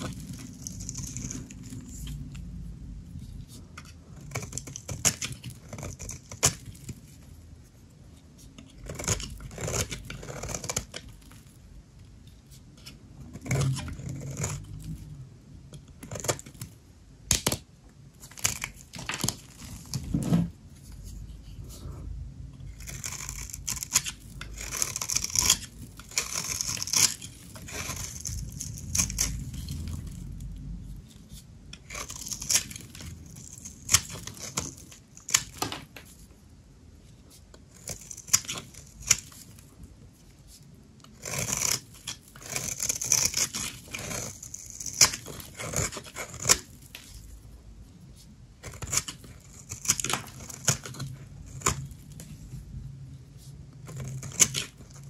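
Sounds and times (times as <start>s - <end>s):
dry soap cracking and crunching: 0.0s - 2.5s, 3.5s - 7.2s, 8.5s - 11.6s, 12.5s - 15.0s, 15.7s - 20.1s, 22.6s - 36.2s, 37.4s - 47.5s, 48.6s - 52.7s, 53.4s - 55.0s
soap scratchy rasping: 22.8s - 30.2s, 41.2s - 47.2s, 53.4s - 55.0s.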